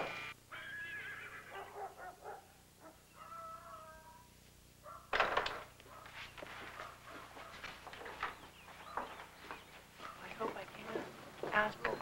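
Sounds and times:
faint animal calls: 0.5s - 5.1s.

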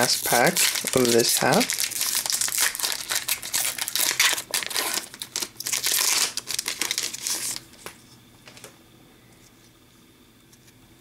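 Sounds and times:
wrapper crinkling as torn open: 0.0s - 7.8s.

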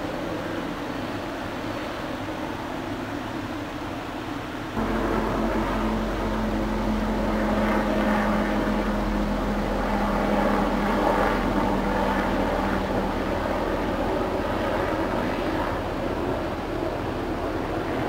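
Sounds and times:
helicopter rotor and engine drone: 0.0s - 18.0s.

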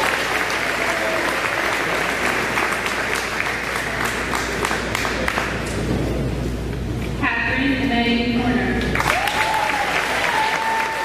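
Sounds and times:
audience applauding: 0.0s - 5.6s, 8.9s - 11.0s.

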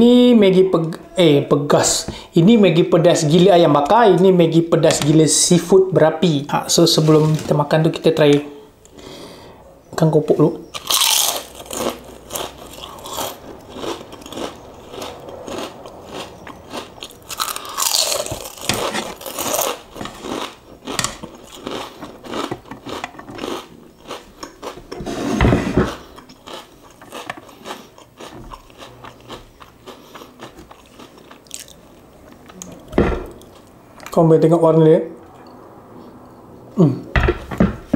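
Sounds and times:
crunching and chewing cracker: 10.7s - 25.0s, 25.8s - 33.8s.

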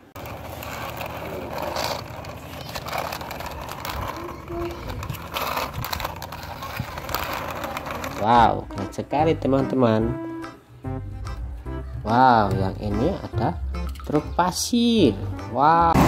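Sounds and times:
toy truck wheels rattling on concrete: 0.0s - 8.9s.

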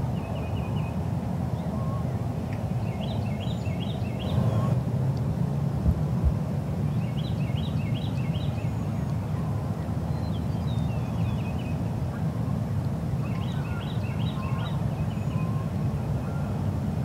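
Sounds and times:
low outdoor rumble: 1.2s - 7.0s.

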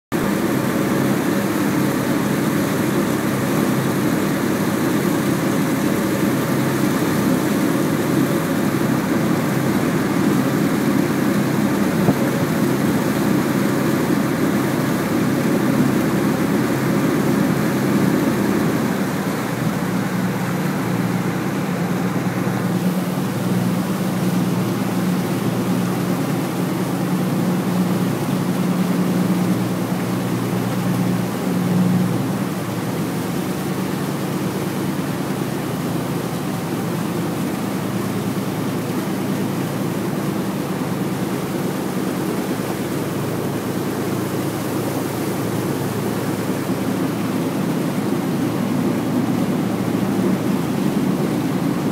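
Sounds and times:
ferry diesel engines droning: 0.2s - 33.1s.

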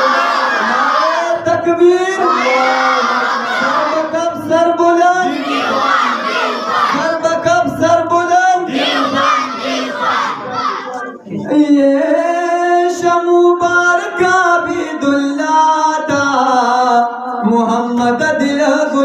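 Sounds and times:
crowd shouting a slogan: 0.0s - 1.4s, 2.1s - 4.4s, 5.1s - 7.5s, 8.5s - 11.3s
man singing: 0.6s - 5.7s, 6.9s - 9.2s, 11.0s - 19.0s.

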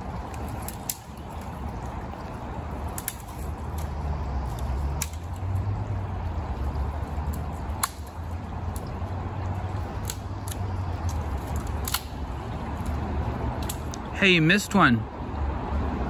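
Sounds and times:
creek water running: 0.0s - 16.0s
sharp clicks: 10.0s - 12.2s.

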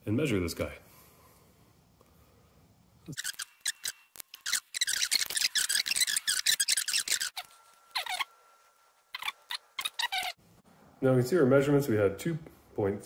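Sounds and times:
metal on metal squeak: 3.1s - 8.4s.

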